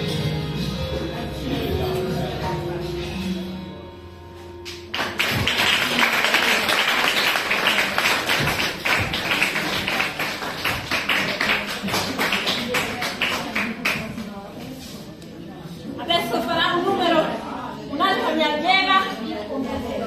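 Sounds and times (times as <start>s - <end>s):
audience applauding: 4.9s - 14.1s.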